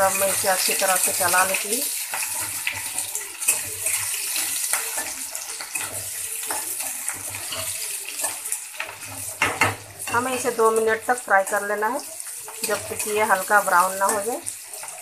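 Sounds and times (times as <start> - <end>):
metal spatula scraping pan: 0.0 - 11.6
onions sizzling in oil: 0.0 - 15.0.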